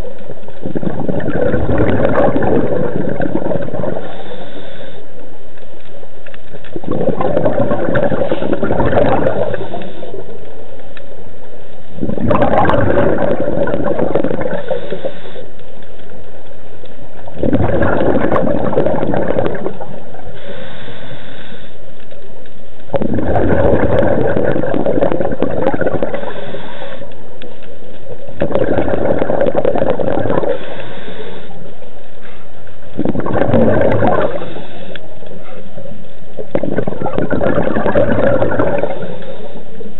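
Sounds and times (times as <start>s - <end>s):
exhaled bubbles gurgling: 0.0s - 10.8s, 11.9s - 15.6s, 16.9s - 21.7s, 22.8s - 39.9s
regulator hiss on inhale: 3.6s - 6.6s, 9.3s - 12.0s, 14.4s - 17.1s, 19.5s - 22.9s, 26.0s - 28.4s, 30.3s - 33.0s, 34.2s - 36.5s, 38.6s - 39.9s.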